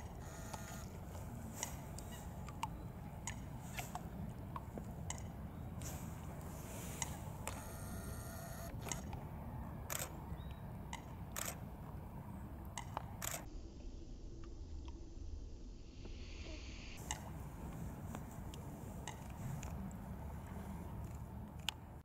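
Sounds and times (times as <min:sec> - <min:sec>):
camera clicks: 0:00.0 - 0:01.0, 0:05.8 - 0:09.2, 0:09.9 - 0:11.6, 0:12.8 - 0:13.5
camera motor whine: 0:00.0 - 0:01.0, 0:07.0 - 0:09.2, 0:09.9 - 0:10.2, 0:11.3 - 0:11.6, 0:13.2 - 0:13.5.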